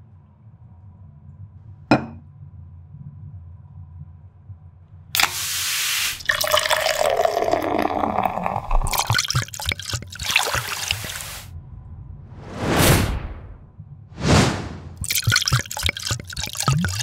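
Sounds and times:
can opening hiss: 5.2s - 6.3s, 10.8s - 11.5s
beer pouring into glass: 5.2s - 11.5s, 15.0s - 17.0s
drips: 6.1s - 11.4s, 15.0s - 17.0s
fizzing clicks: 15.0s - 17.0s.

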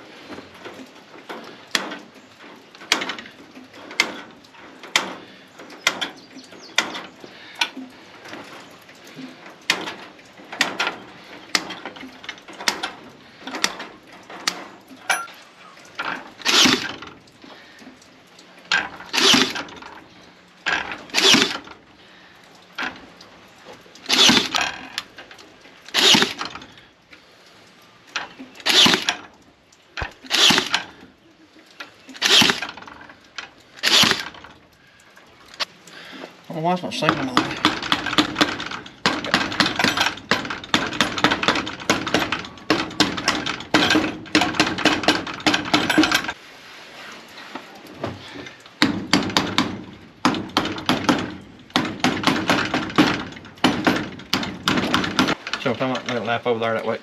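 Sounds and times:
hand tools clicking on wire mesh: 0.6s - 21.8s, 22.4s - 26.8s, 28.0s - 46.4s
nail gun firing: 16.4s - 17.0s, 19.1s - 19.7s, 21.1s - 21.7s, 24.1s - 24.7s, 25.9s - 26.6s, 28.6s - 29.2s, 30.0s - 30.9s, 32.2s - 32.8s, 33.8s - 34.4s, 37.3s - 46.3s, 48.8s - 55.4s.

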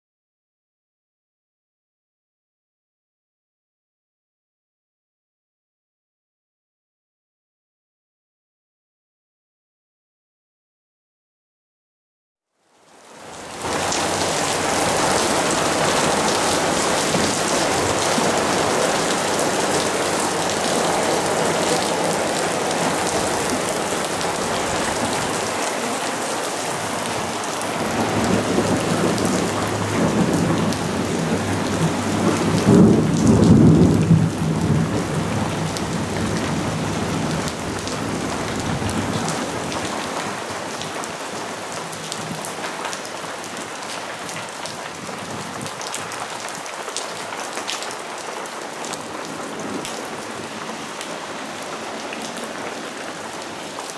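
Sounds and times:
rain pattering on water and concrete: 12.6s - 53.9s
thunder rumbling: 13.6s - 39.2s.

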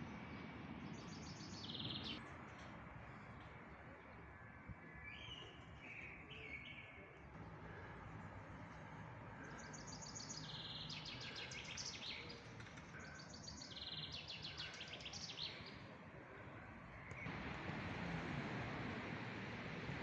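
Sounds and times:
songbird singing trills: 0.9s - 2.2s, 9.5s - 15.9s.

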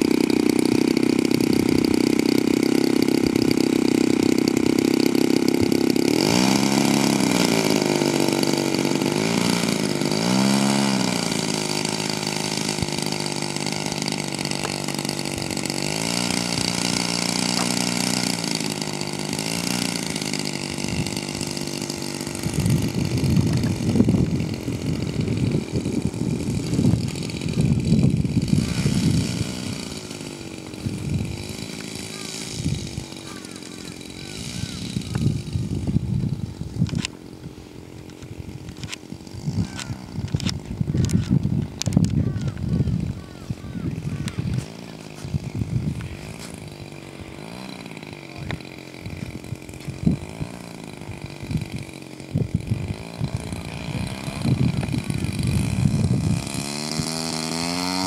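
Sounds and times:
model plane petrol engine: 0.0s - 58.0s
wind gusts hitting microphone: 22.3s - 30.0s, 34.6s - 37.5s, 38.3s - 47.3s, 48.5s - 57.1s.

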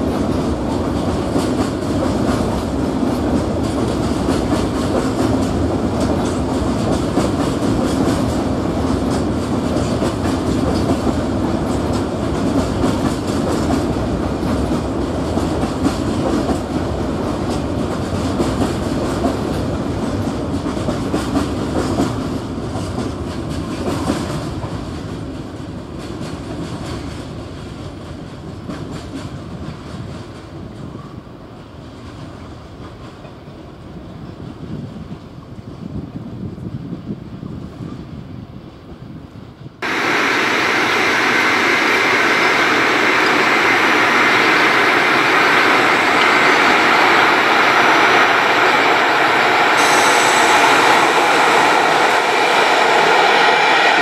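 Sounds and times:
train rumbling past: 0.0s - 54.0s.

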